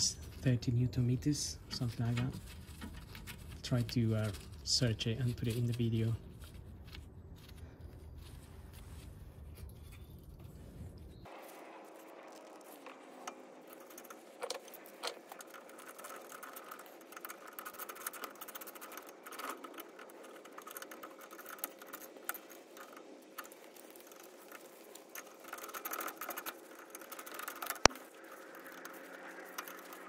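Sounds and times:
bolt clicking and rattling: 0:12.3 - 0:30.0.

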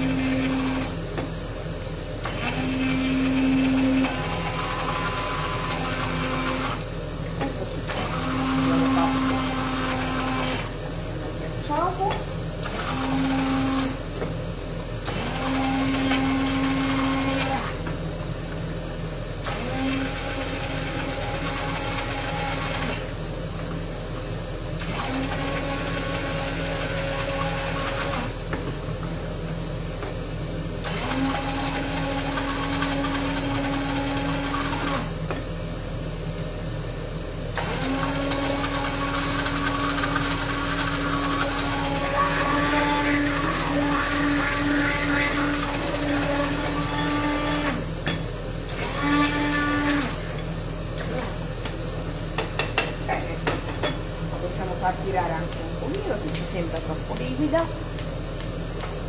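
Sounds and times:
immersion blender motor whine: 0:00.0 - 0:01.2, 0:02.2 - 0:06.9, 0:07.8 - 0:10.8, 0:12.6 - 0:14.2, 0:15.0 - 0:17.9, 0:19.4 - 0:23.2, 0:24.7 - 0:28.5, 0:30.8 - 0:35.2, 0:37.5 - 0:48.0, 0:48.6 - 0:51.4.

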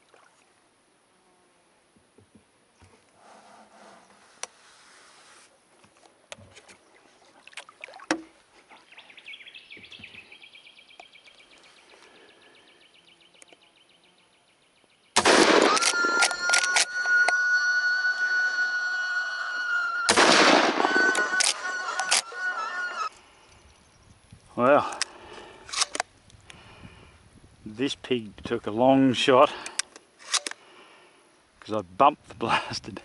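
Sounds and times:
loud shotgun shot: 0:15.2 - 0:16.8, 0:20.1 - 0:21.6
faint high buzzing: 0:15.6 - 0:24.0
shotgun handling clicks: 0:24.9 - 0:26.1, 0:29.6 - 0:30.6.

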